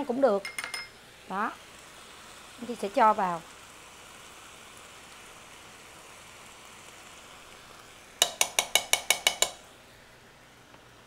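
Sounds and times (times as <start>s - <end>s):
faint sizzle from frying pan: 0.0s - 11.0s
metal spoon clinking glass jar: 0.4s - 0.9s.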